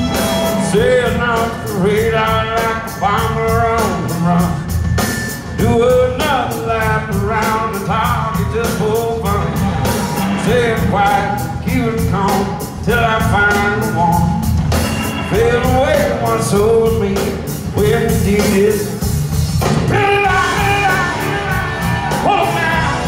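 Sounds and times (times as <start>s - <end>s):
person singing: 0.0s - 4.7s, 19.9s - 23.0s
fast drum beat: 0.0s - 23.0s
live rock band playing: 0.0s - 23.0s.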